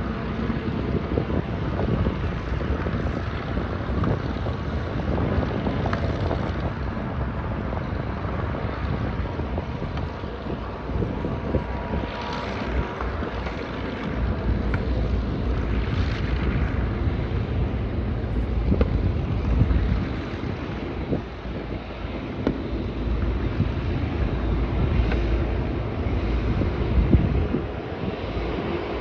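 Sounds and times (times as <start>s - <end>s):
propeller aircraft engines rumbling: 0.0s - 29.0s
wind buffeting microphone: 0.0s - 29.0s.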